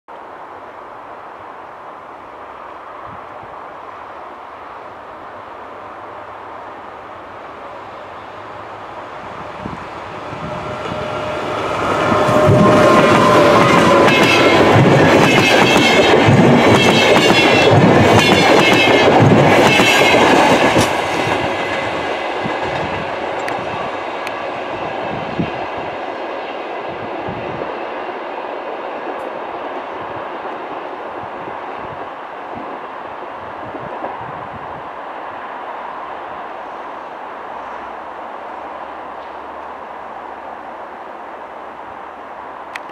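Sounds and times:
train wheels clattering over rail joints: 11.7 - 23.6.

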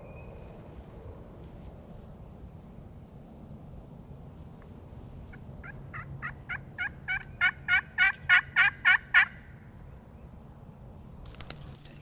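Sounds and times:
wild turkey yelps: 5.6 - 9.5.

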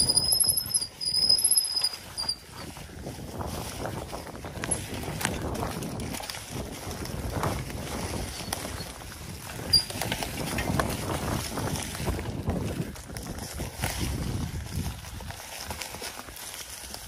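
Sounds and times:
brake squeal: 0.0 - 2.8, 9.6 - 10.0
bike rattling over bumps: 0.0 - 17.0
bike tyres on dry leaves: 0.0 - 17.0.

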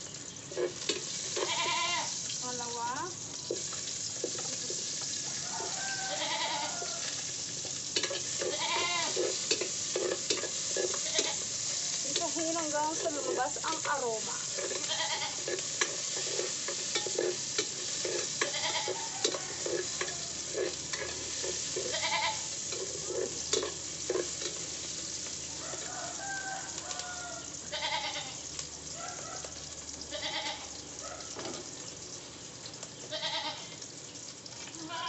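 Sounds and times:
aromatics sizzling in oil: 0.0 - 35.0
ladle scraping pot: 8.0 - 11.5, 13.0 - 24.6.

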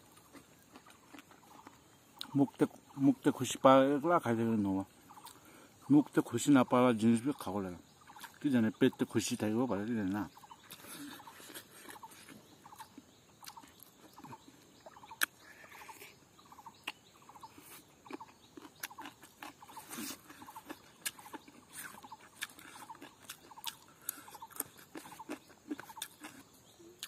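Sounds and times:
person chewing with smacks: 0.0 - 2.4, 10.4 - 27.0.

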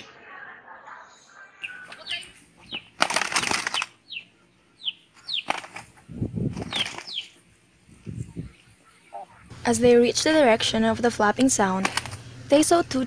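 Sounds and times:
wings flapping: 1.6 - 4.2, 4.8 - 8.7, 11.6 - 12.3.

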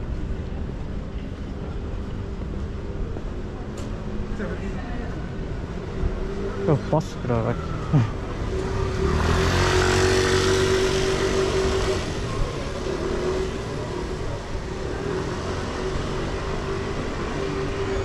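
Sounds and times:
street noise: 0.0 - 18.0
motor vehicle passing: 7.9 - 18.0.

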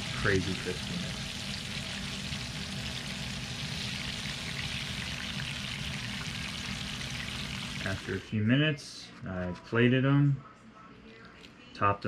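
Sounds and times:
fish frying in hot oil: 0.0 - 8.2.

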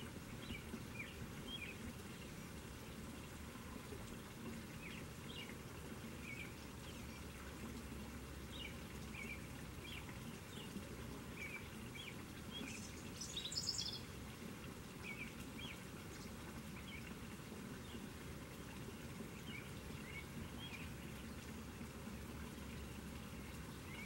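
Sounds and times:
water pouring into a pond: 0.0 - 24.0
small birds chirping: 8.5 - 14.1.

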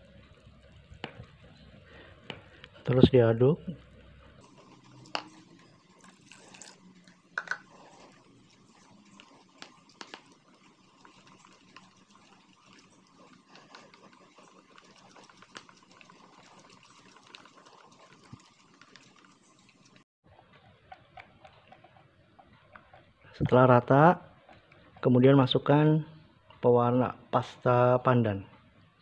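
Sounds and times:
batter sloshing: 0.0 - 25.6
whisk ticking against bowl: 8.8 - 20.0.

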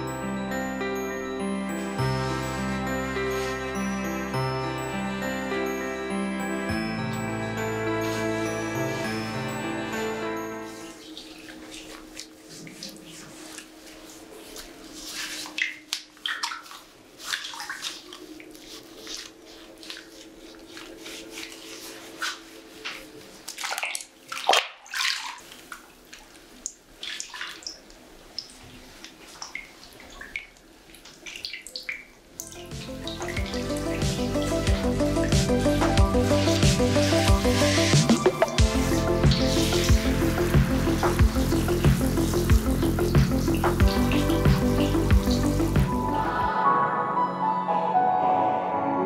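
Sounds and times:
bathwater sloshing and splashing: 10.7 - 46.2.

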